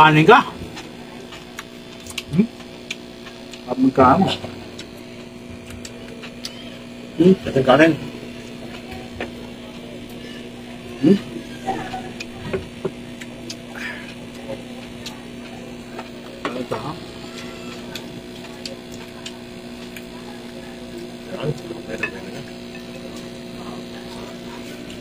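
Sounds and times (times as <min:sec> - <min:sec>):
steady low hum: 0:00.0 - 0:25.0
chewing: 0:00.8 - 0:03.7, 0:13.2 - 0:15.4, 0:17.3 - 0:20.1.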